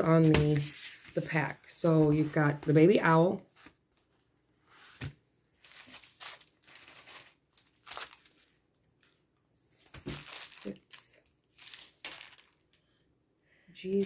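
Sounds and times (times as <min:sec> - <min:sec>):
paper and plastic crinkling: 0:05.0 - 0:09.2, 0:09.8 - 0:12.8.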